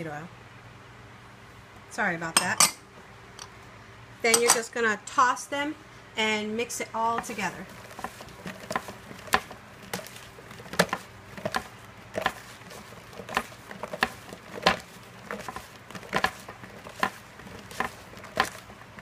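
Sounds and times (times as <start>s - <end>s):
fries tapping against plastic bowl: 7.1s - 19.0s.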